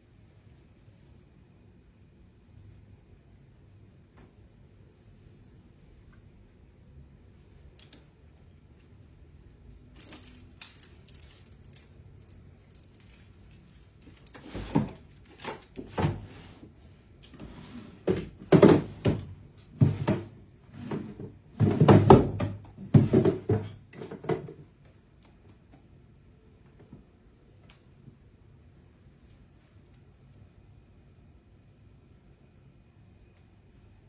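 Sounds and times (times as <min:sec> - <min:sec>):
drawer rummaging knocks and rattles: 0:14.4 - 0:16.4, 0:17.4 - 0:24.6.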